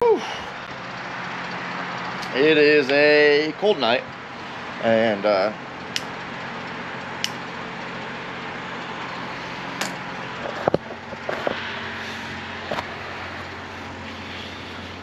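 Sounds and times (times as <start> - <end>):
steady rushing noise with hum: 0.5 - 15.0
sharp clicks: 7.2 - 7.4.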